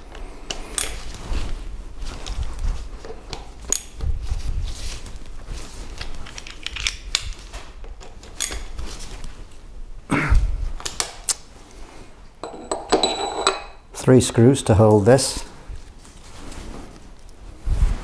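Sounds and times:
steel parts clinking: 0:12.4 - 0:13.8.

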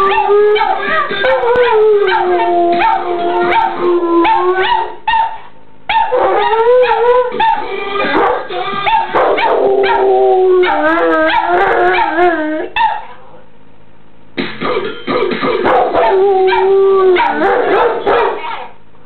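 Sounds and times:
dogs howling: 0:00.0 - 0:05.0, 0:06.0 - 0:12.8, 0:15.7 - 0:18.7.

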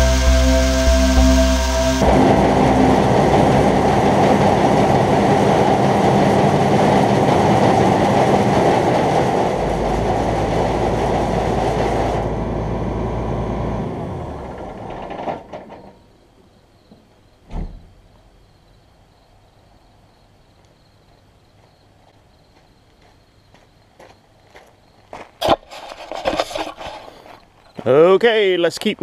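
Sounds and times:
grain auger rattling rumble: 0:02.0 - 0:15.9, 0:25.4 - 0:27.3.

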